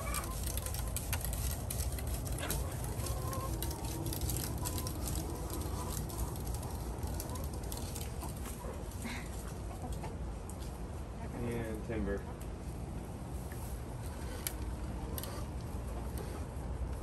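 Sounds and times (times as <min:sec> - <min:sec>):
rake scratching bristles: 0:00.0 - 0:09.0.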